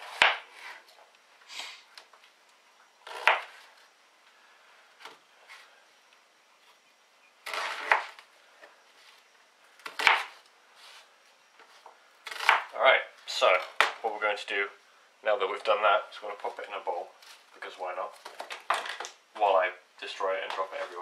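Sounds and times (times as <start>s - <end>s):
knife cutting onion: 3.1s - 3.6s, 9.8s - 10.4s, 12.2s - 12.8s.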